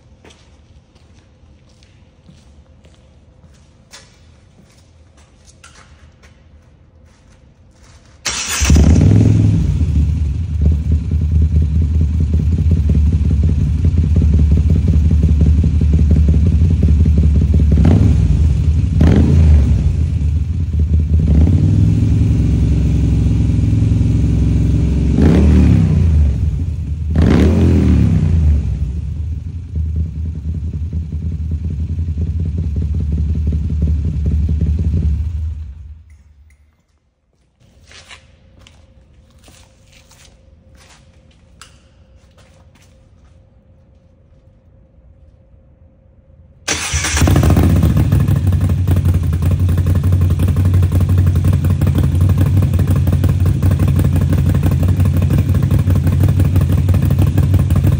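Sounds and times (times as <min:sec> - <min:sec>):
motorcycle engine starting: 0:08.2 - 0:36.1, 0:46.7 - 0:57.9
engine throttle blips: 0:08.2 - 0:36.5, 0:45.8 - 0:57.9
motorcycle engine idling: 0:08.4 - 0:25.1, 0:28.3 - 0:36.0, 0:46.7 - 0:57.9.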